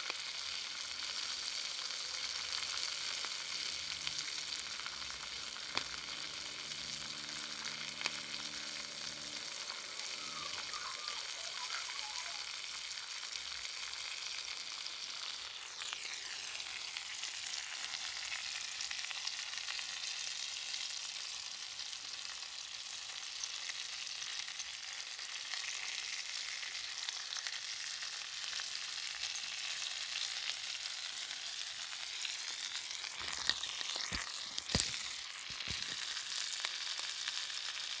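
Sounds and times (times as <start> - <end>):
meat sizzling in pans: 0.0 - 38.0.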